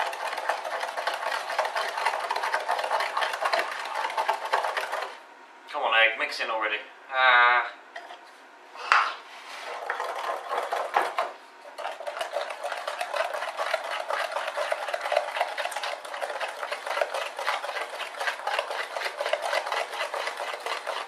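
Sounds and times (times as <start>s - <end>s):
spoon scraping glass bowl: 11.8s - 21.0s.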